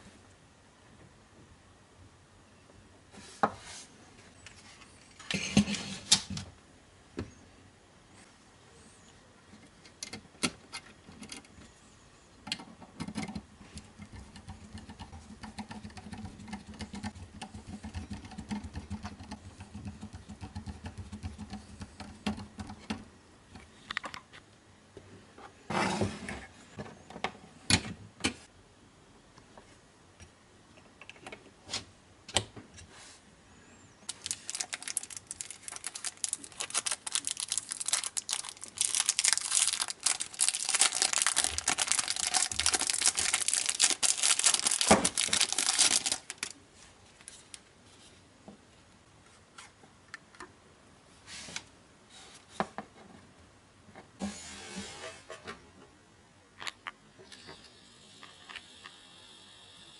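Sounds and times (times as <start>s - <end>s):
plastic bag crinkling: 34.1s - 46.6s.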